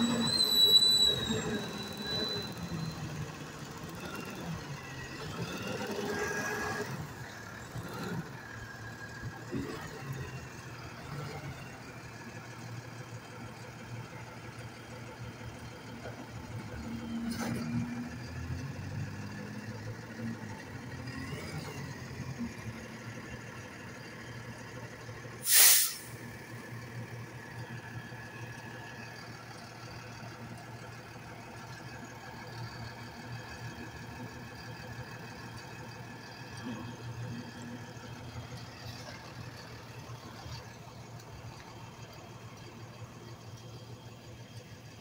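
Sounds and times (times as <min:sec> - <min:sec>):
diesel engine idling: 0:00.0 - 0:06.1, 0:06.9 - 0:17.0, 0:19.2 - 0:45.0
air brake hiss: 0:25.4 - 0:26.3.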